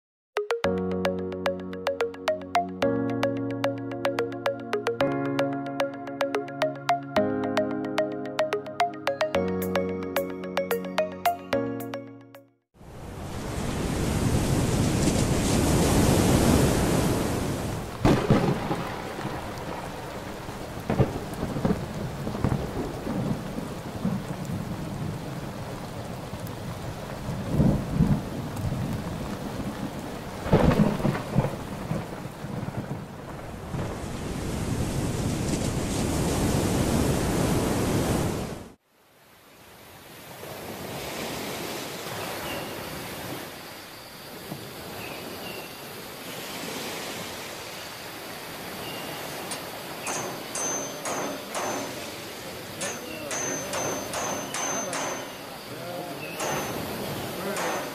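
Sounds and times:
heavy steady rain: 0:12.8 - 0:57.9
thunderclaps and rolling rumbles: 0:14.2 - 0:37.2.

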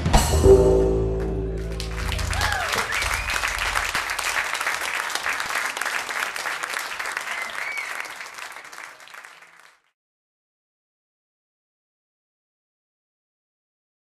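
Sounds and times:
audience applauding: 0:01.6 - 0:09.9
short whistles: 0:07.2 - 0:08.2.

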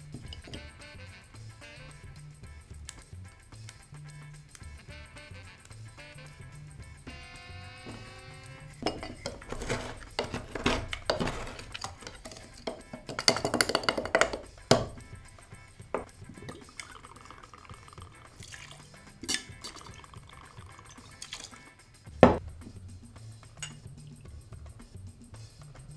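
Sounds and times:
muddler knocking in metal tin: 0:00.0 - 0:00.7, 0:08.8 - 0:16.8, 0:17.5 - 0:21.6
background music: 0:00.0 - 0:25.9
liquid pouring: 0:00.2 - 0:00.6, 0:08.8 - 0:15.0, 0:15.9 - 0:21.7.

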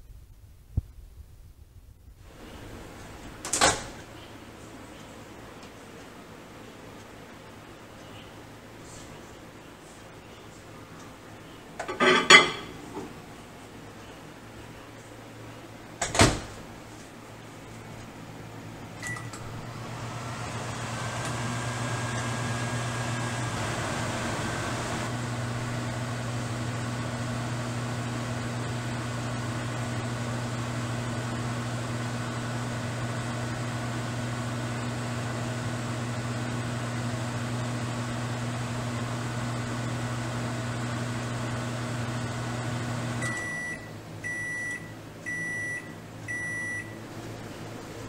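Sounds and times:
microwave oven humming: 0:18.4 - 0:48.0.

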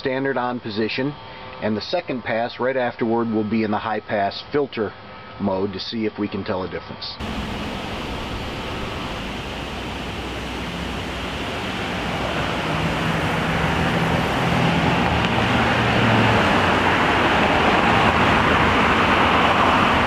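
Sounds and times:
cars passing: 0:07.2 - 0:20.0.

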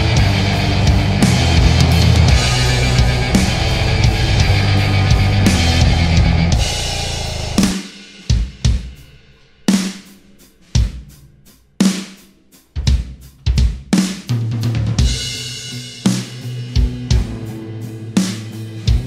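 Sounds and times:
steady bass note: 0:00.0 - 0:07.8
rock music: 0:00.0 - 0:11.1, 0:14.6 - 0:19.0
drum hits: 0:00.0 - 0:15.5.

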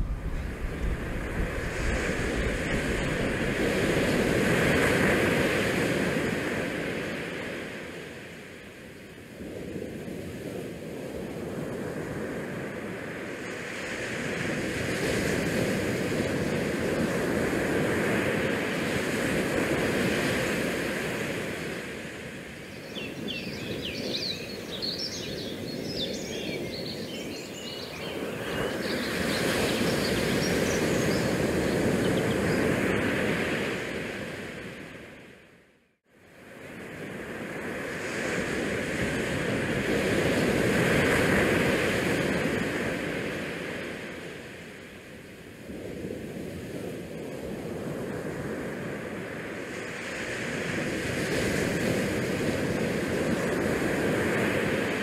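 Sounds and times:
wind buffeting microphone: 0:00.0 - 0:06.6
rush of the sea: 0:00.0 - 0:55.0.

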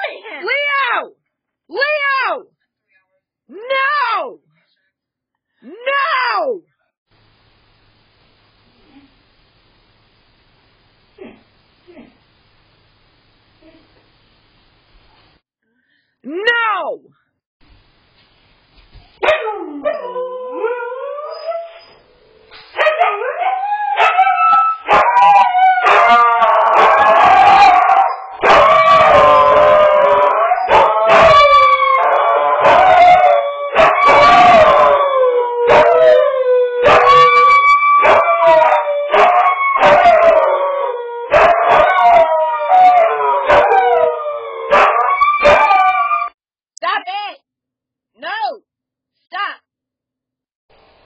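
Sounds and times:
dogs howling: 0:19.2 - 0:21.9, 0:22.8 - 0:46.4.

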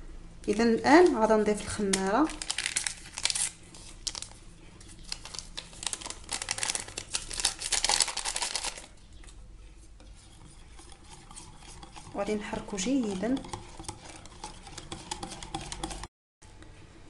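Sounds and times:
paper sachet crinkling: 0:01.0 - 0:09.0.

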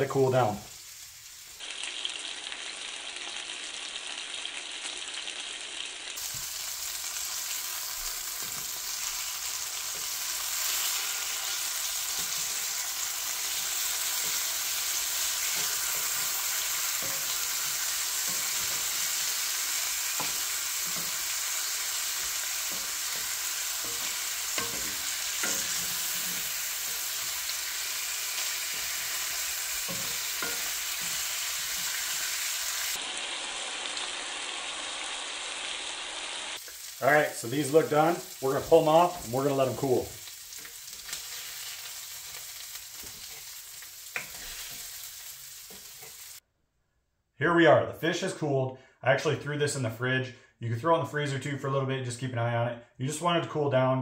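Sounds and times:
fish sizzling in a skillet: 0:00.0 - 0:46.4.

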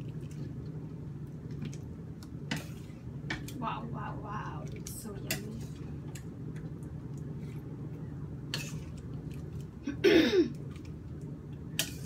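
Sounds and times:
steady low hum: 0:00.0 - 0:12.0
throat clearing: 0:09.9 - 0:10.6.

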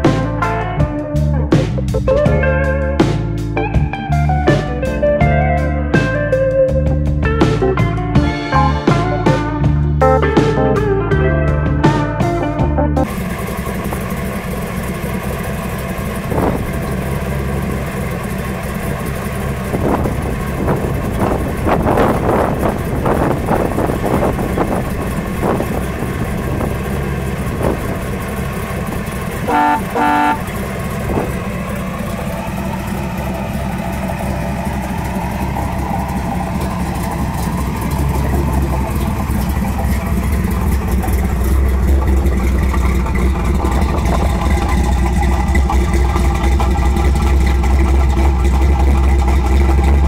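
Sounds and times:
car engine idling: 0:00.0 - 0:50.0
engine throttle blips: 0:00.0 - 0:50.0
car horn toots: 0:29.4 - 0:31.3.

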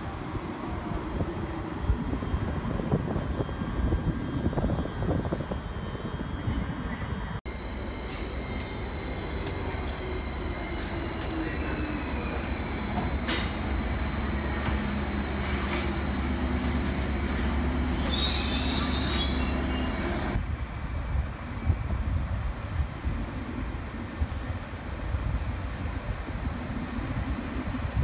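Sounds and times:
train hum and whine: 0:00.0 - 0:28.0
train brakes squealing: 0:07.5 - 0:20.4.

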